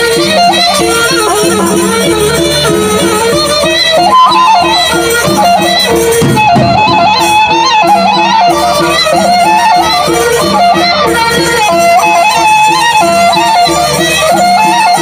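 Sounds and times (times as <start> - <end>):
cymbals: 0.0 - 15.0
wavering melodic line: 0.0 - 15.0
barrel drums beaten with sticks: 5.2 - 8.1.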